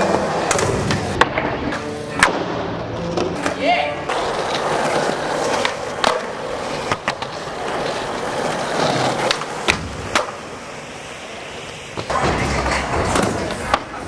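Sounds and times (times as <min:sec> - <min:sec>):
skateboard wheels rolling on concrete: 0:00.0 - 0:14.0
skateboard clicks and knocks: 0:03.0 - 0:14.0.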